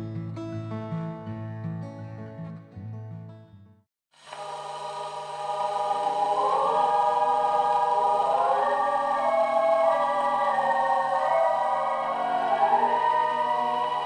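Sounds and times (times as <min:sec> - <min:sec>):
acoustic guitar music: 0:00.0 - 0:03.8
choral chant-like music: 0:04.4 - 0:14.0
low drone: 0:04.4 - 0:14.0.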